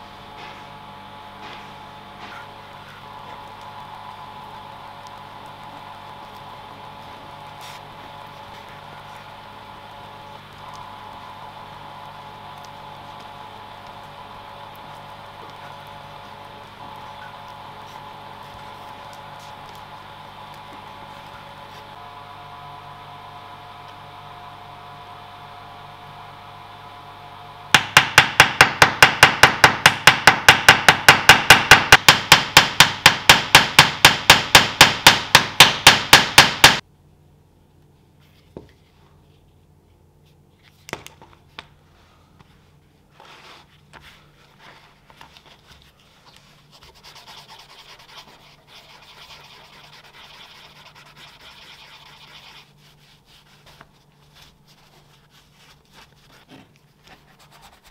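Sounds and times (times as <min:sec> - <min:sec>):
hammer striking metal: 0:27.8 - 0:36.8
rubbing on leather: 0:43.2 - 0:57.9.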